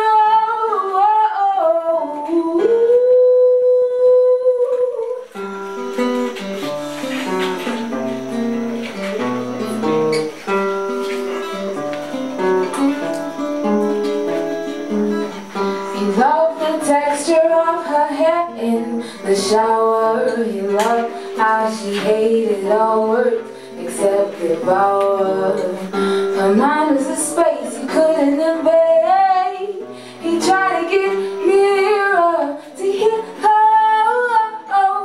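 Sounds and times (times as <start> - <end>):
woman singing: 0.0 - 5.6, 15.6 - 35.0
acoustic guitar picking: 0.0 - 35.0.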